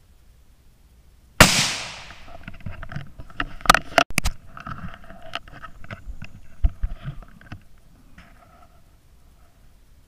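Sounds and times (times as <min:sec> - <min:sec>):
rifle shot with echo: 0:01.4 - 0:02.3.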